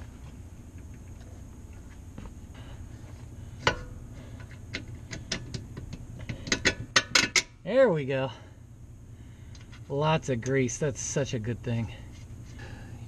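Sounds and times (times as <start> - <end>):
metal-on-metal handling: 3.6 - 7.6.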